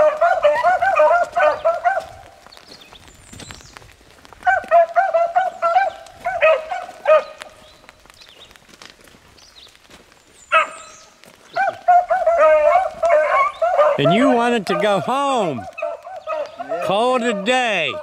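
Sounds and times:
dogs baying: 0.0 - 2.4, 4.4 - 7.6, 10.5 - 18.0.

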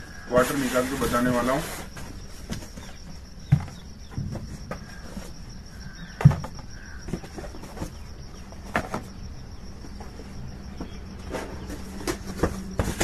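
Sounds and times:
boxes knocking on table: 6.1 - 8.0, 10.8 - 13.0.

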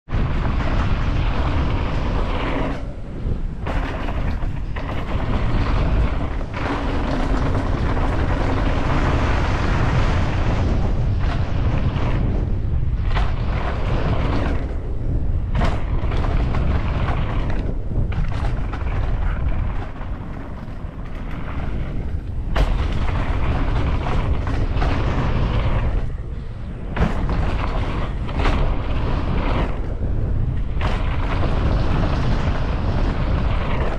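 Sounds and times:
wind buffeting microphone: 0.0 - 33.9
rumbling and knocks from riding: 0.1 - 33.9.

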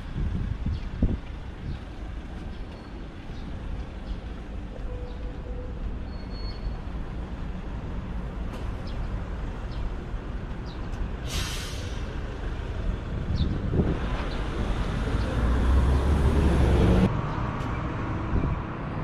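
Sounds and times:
road traffic rumble: 0.0 - 19.0
short loud hiss: 11.2 - 12.1.

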